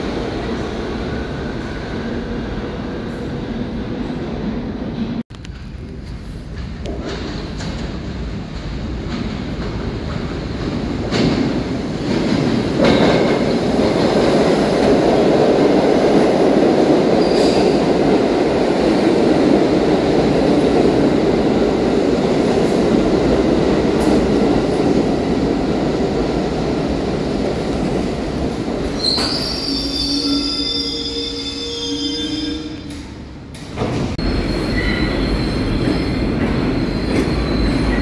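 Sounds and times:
train wheels rumbling on rail: 0.0s - 38.0s
train brakes squealing: 17.2s - 17.8s, 29.0s - 32.9s, 34.2s - 38.0s.

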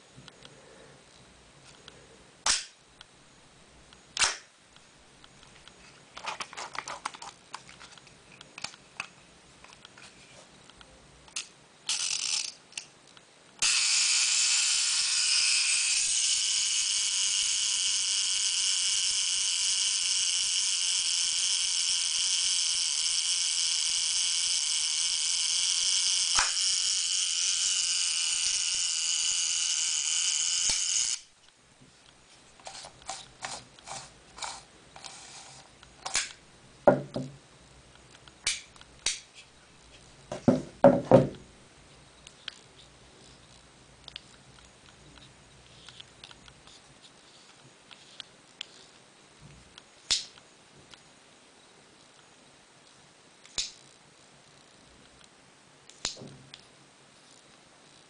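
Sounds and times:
small mechanical clicks: 11.3s - 12.9s
camera whirring buzz: 13.6s - 31.3s.

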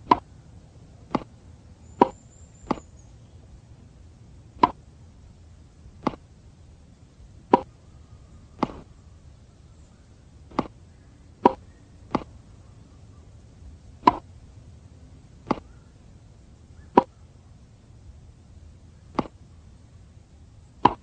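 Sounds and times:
tennis ball hits: 0.0s - 0.3s, 1.1s - 1.3s, 4.6s - 4.8s, 6.0s - 6.2s, 8.6s - 8.9s, 10.5s - 10.8s, 11.4s - 12.3s, 14.0s - 14.2s, 15.4s - 15.7s, 16.9s - 17.1s, 19.1s - 19.4s, 20.8s - 21.0s.

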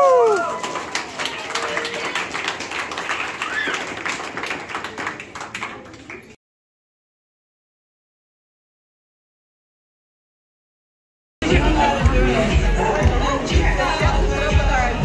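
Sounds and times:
person whooping: 0.0s - 2.0s, 3.4s - 3.8s
crowd applauding: 0.0s - 6.4s
scattered voices: 11.4s - 15.0s.

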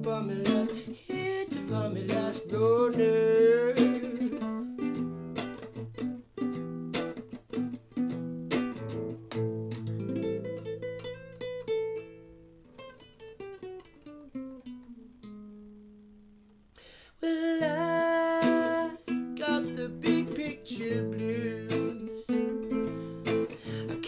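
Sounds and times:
man singing: 0.0s - 4.9s, 17.1s - 22.6s, 23.2s - 24.0s
acoustic guitar: 0.0s - 24.0s.

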